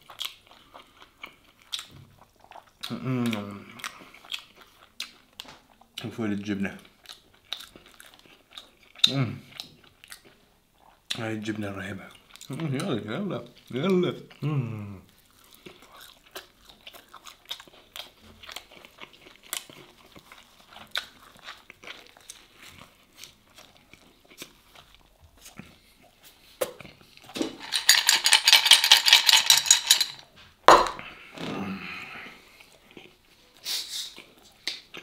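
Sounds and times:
crunchy chewing: 6.8s - 11.1s, 15.1s - 27.3s
ice cubes rattling in glass: 27.6s - 30.2s
sharp knock: 30.7s - 31.0s.

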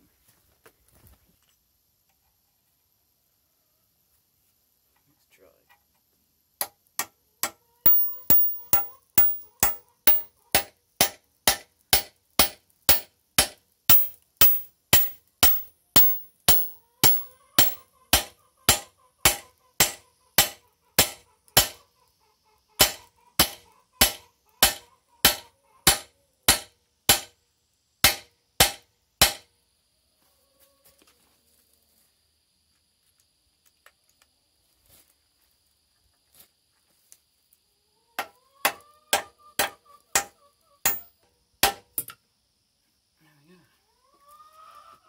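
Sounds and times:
hammer ringing on steel: 7.9s - 11.2s, 12.0s - 13.1s, 13.9s - 17.8s.

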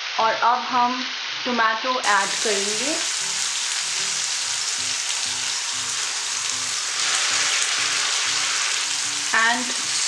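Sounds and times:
paste sizzling in hot oil: 2.0s - 10.0s.

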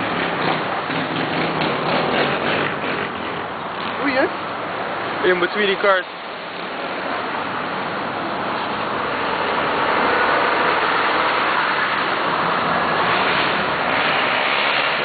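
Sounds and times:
quad engine rumbling: 0.0s - 15.0s.

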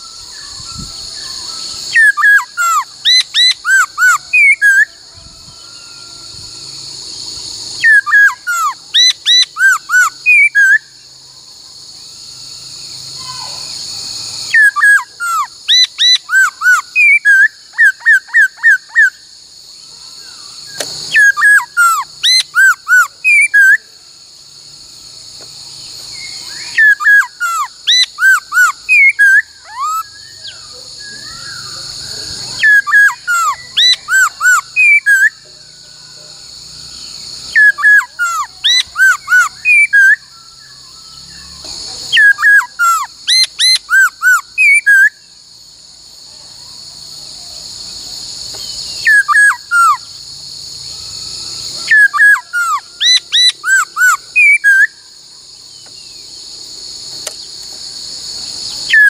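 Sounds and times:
bird whistling song: 0.0s - 6.5s, 7.4s - 11.1s, 14.4s - 19.3s, 20.2s - 23.9s, 25.8s - 35.5s, 36.7s - 45.3s, 48.5s - 50.1s, 51.0s - 56.3s, 58.7s - 59.0s
insect chirring: 0.0s - 59.0s.

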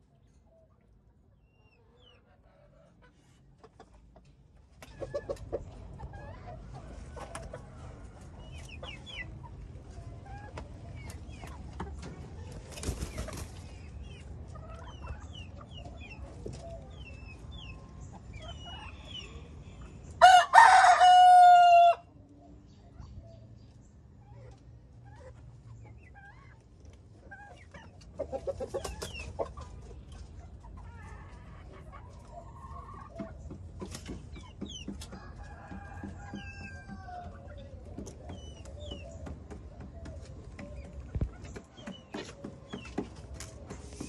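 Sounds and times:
chickens clucking and chirping: 0.0s - 44.0s
rooster crowing: 20.2s - 22.1s.

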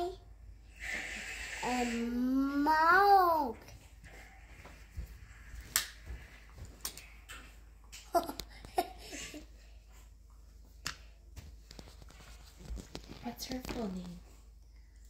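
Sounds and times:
child vocal sounds: 1.6s - 3.6s.

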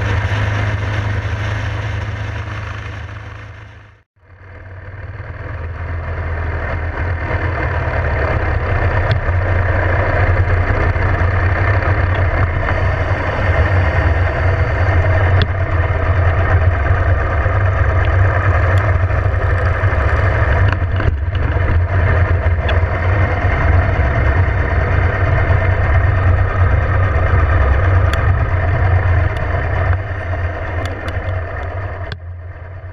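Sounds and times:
motorcycle engine rumbling: 0.0s - 32.9s.

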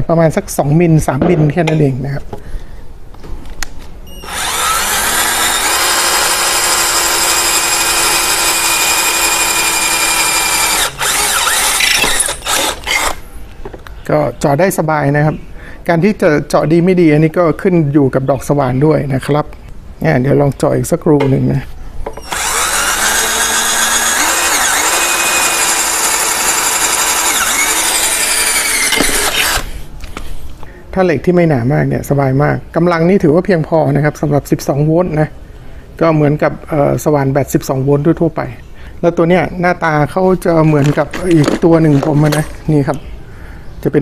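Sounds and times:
cordless drill whining: 4.1s - 13.2s, 22.2s - 29.8s.

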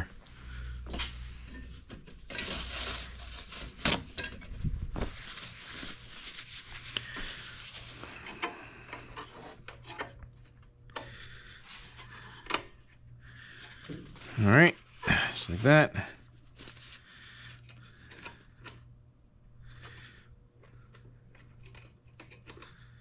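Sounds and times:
hands rubbing with paper towel: 5.0s - 8.0s.

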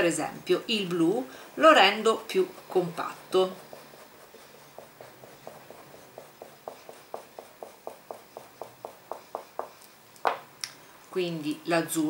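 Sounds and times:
dye stick scratching on fabric: 1.1s - 10.0s.

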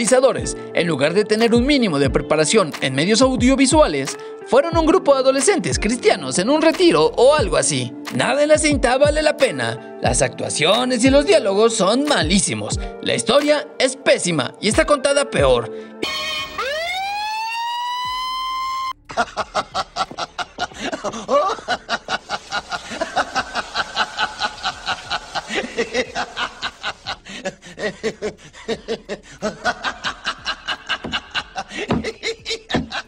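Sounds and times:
siren: 16.0s - 19.0s
man laughing: 19.1s - 33.0s.

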